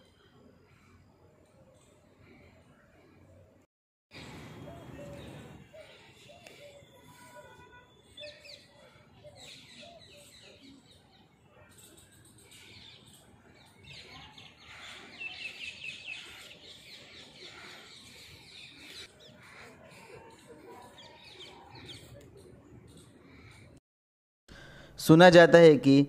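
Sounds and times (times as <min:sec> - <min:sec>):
small birds chirping: 0:04.2 - 0:23.8.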